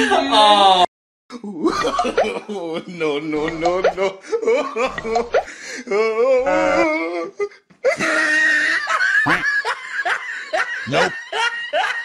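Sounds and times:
person laughing hard: 4.2 - 12.0.

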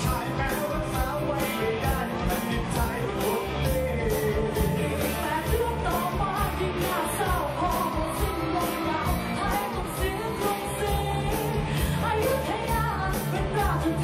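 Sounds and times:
man singing into microphone: 0.0 - 8.8
live rock band playing: 0.0 - 14.0.

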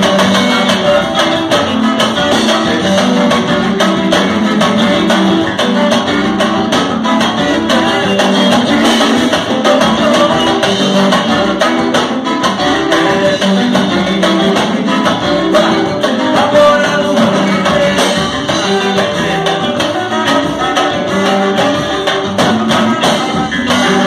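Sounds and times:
live band playing latin music: 0.0 - 24.0.

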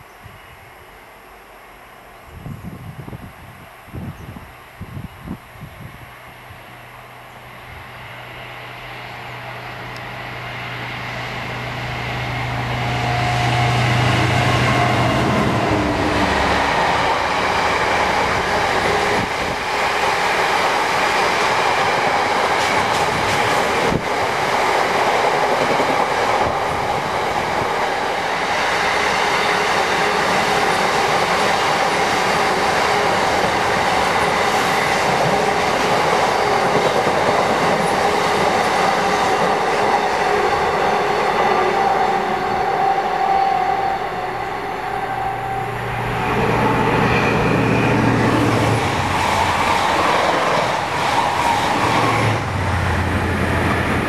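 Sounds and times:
diesel locomotive engine hum: 0.0 - 54.0
train wheels on rails: 6.5 - 54.0
clickety-clack over rail joints: 21.3 - 26.6, 30.4 - 39.9.

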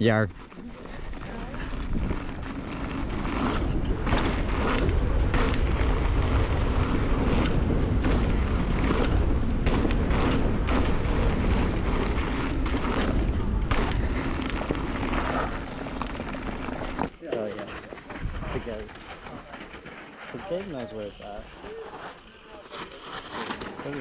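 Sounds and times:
bike clicks and rattles: 0.0 - 24.0
tyres rolling on dirt: 0.0 - 24.0
wind rumble on microphone: 0.9 - 17.1, 17.7 - 19.6.

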